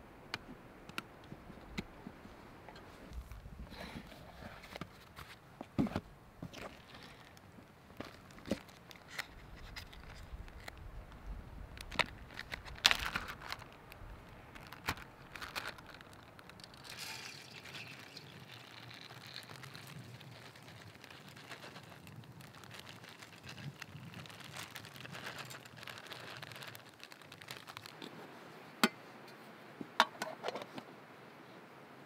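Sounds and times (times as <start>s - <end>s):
plastic bag crinkling: 11.8s - 28.0s
rice and water sliding out: 16.0s - 27.9s.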